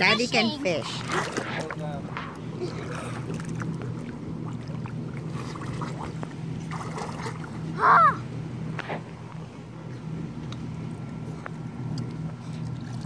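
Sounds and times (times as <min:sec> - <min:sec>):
boat motor humming: 0:00.0 - 0:13.0
light water splashing: 0:00.6 - 0:07.8.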